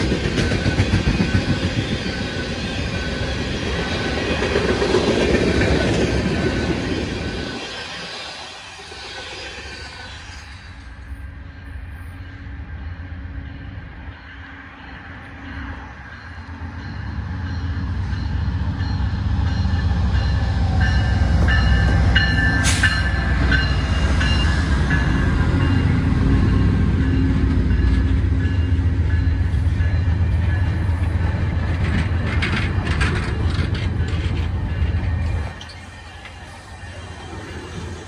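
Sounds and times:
train wheel clicks: 0.0 - 2.4, 31.4 - 36.6
train rumbling past: 0.0 - 38.0.

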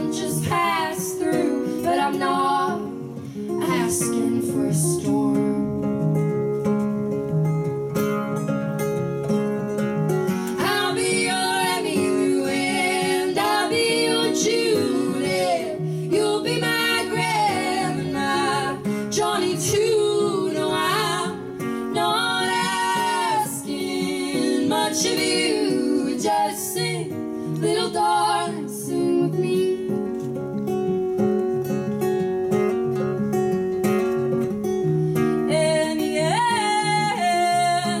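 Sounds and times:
women singing together: 0.0 - 5.9, 10.4 - 30.1, 35.4 - 38.0
strummed acoustic guitar: 0.0 - 38.0.

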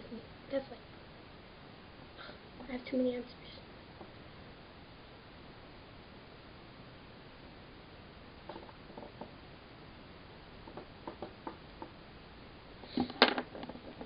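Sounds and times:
small objects clicking on a desk: 8.5 - 9.3, 10.6 - 12.0, 13.0 - 14.0
knocks: 10.6 - 12.0.

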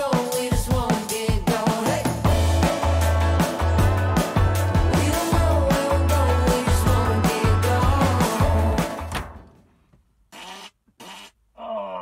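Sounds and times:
background music with steady beat: 0.0 - 9.5
deep bass line: 2.1 - 9.1.

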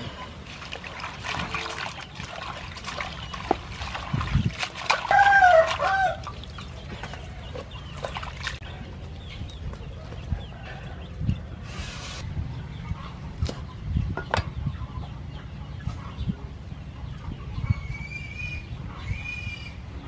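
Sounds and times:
water splashing and trickling: 0.0 - 10.2.

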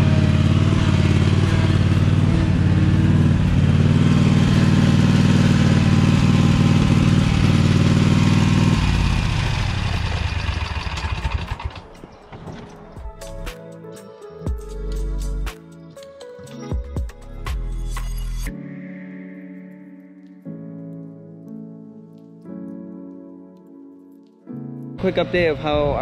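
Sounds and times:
mower engine running: 0.0 - 12.9, 25.0 - 26.0.

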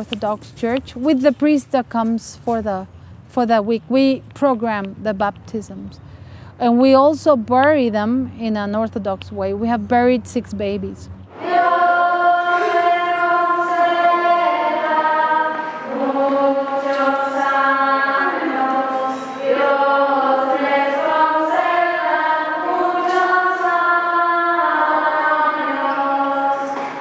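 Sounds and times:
choir singing chant: 11.3 - 27.0.

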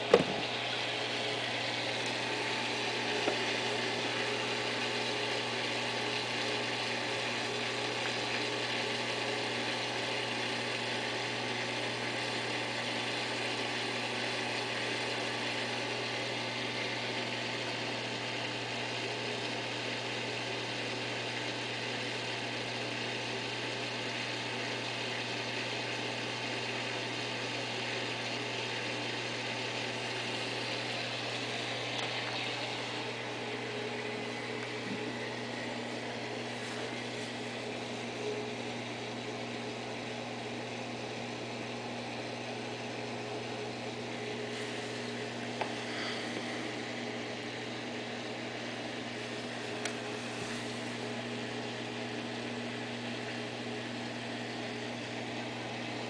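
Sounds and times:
hiss of moving water and bubbles: 0.0 - 40.2, 42.1 - 56.0
low electric pump hum: 0.0 - 56.0.

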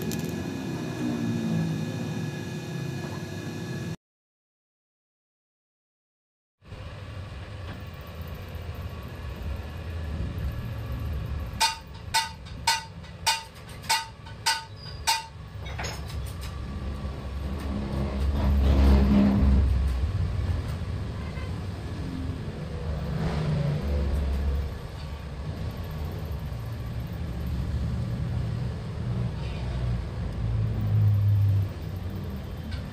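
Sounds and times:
road traffic rumble: 0.0 - 4.0, 6.6 - 32.9.

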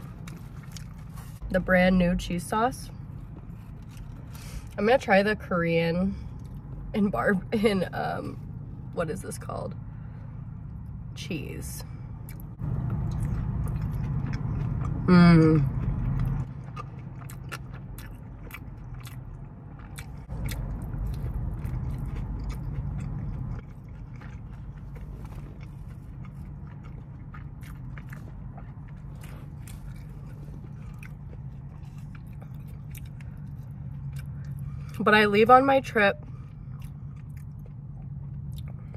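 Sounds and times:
close-up wet chewing: 0.0 - 1.4, 12.2 - 35.0, 36.2 - 38.9
low steady hum: 0.0 - 38.9.

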